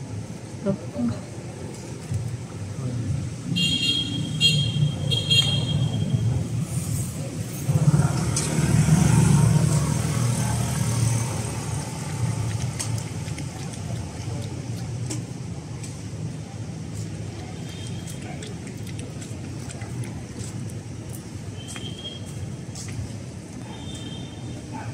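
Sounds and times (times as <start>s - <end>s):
traffic engine hum: 0.0s - 24.9s
vehicle passing close by: 7.5s - 13.3s.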